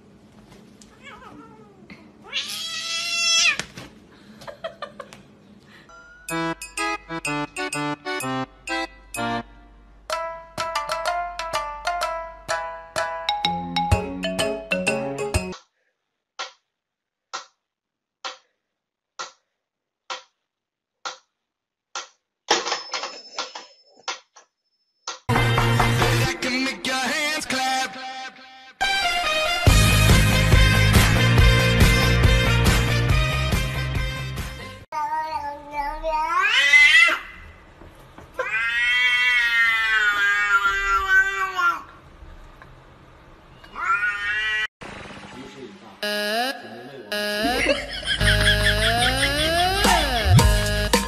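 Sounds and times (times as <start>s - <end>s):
cat yowling: 0.9s - 3.6s, 38.4s - 41.9s, 43.7s - 44.7s.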